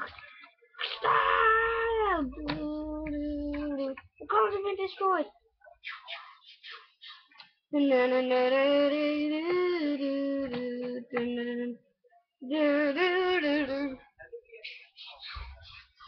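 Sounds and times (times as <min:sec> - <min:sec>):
child singing wordless notes: 0:01.8 - 0:05.3.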